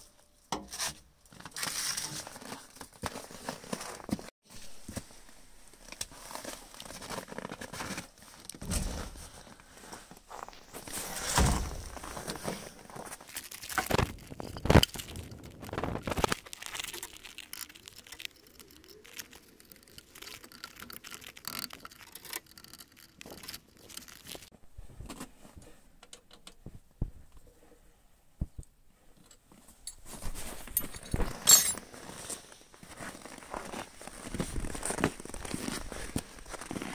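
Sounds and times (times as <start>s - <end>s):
metallic clatter of tools: 30.8s - 31.8s
boots crunching in snow: 31.9s - 36.9s.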